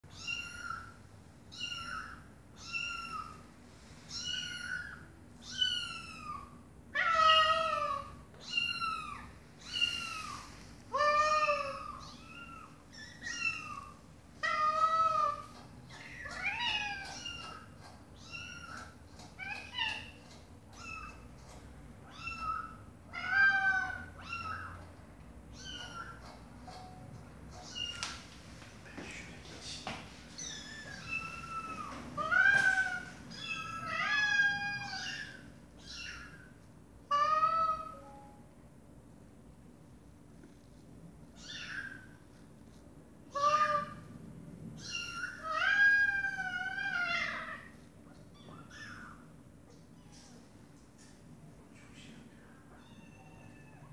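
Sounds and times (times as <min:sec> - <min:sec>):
kittens meowing: 0:00.1 - 0:03.5, 0:04.1 - 0:24.9, 0:25.5 - 0:26.4, 0:30.4 - 0:38.0, 0:41.4 - 0:42.2, 0:43.3 - 0:44.1, 0:44.8 - 0:50.4, 0:52.8 - 0:53.9
mother cat calling: 0:43.3 - 0:44.1.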